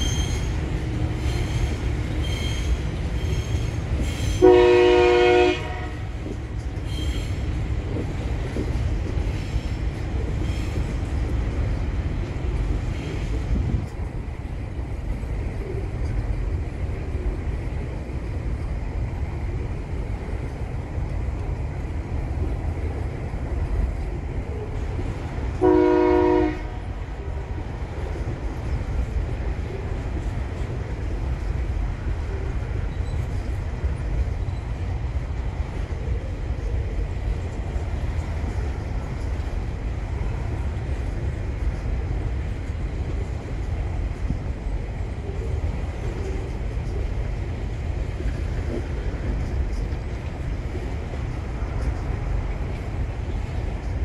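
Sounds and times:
freight train rumbling past: 0.0 - 54.0
train horn blast: 4.4 - 6.2, 25.6 - 27.0.

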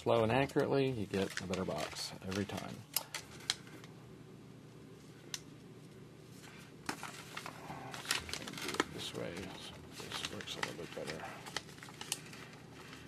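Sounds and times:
paper crackling and rustling: 0.1 - 3.9, 6.4 - 13.0.

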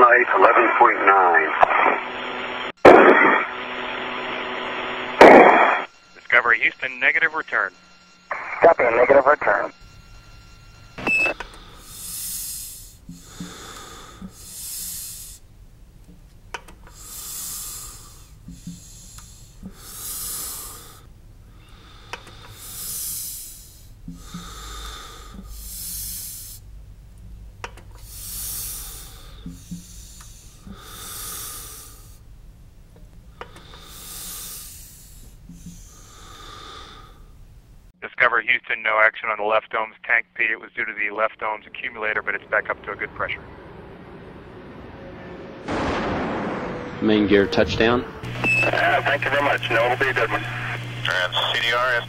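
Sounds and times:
breathing in a helmet: 11.3 - 15.5, 16.8 - 26.8, 28.0 - 32.3, 33.2 - 37.4.

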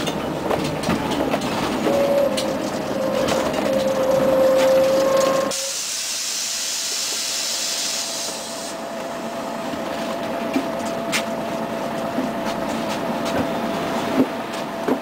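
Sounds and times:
bus running noise with whine: 0.0 - 15.0
hiss: 5.5 - 8.8.

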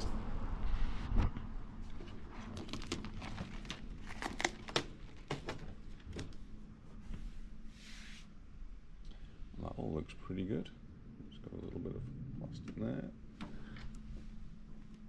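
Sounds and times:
packaging sheet peeled and crinkled: 2.0 - 5.6.

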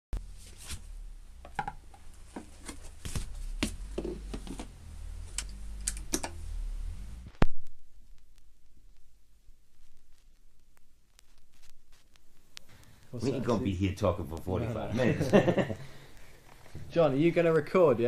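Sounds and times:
low steady hum: 0.2 - 9.8.

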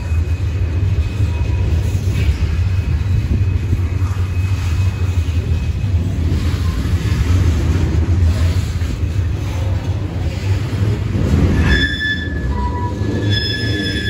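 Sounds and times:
freight train wheels rumbling on rails: 0.0 - 14.0.

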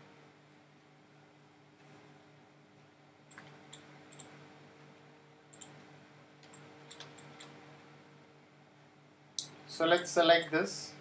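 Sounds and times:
faint electrical hum: 0.0 - 11.0
computer mouse clicking: 3.3 - 4.3, 5.5 - 5.8, 6.4 - 7.6.

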